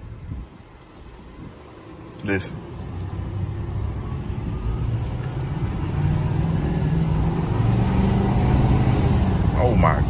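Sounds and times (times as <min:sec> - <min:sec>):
diesel truck engine accelerating: 0:01.8 - 0:10.0.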